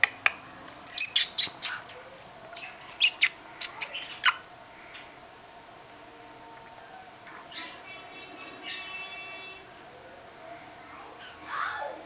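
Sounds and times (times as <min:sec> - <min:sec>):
lip-smacking kissing squeaks: 0:00.9 - 0:01.9, 0:03.0 - 0:04.4.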